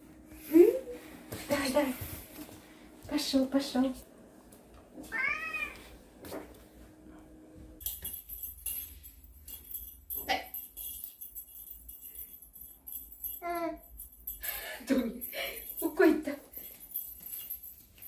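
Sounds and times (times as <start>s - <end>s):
cat meowing: 5.1s - 5.9s
light high jingling: 7.8s - 18.0s.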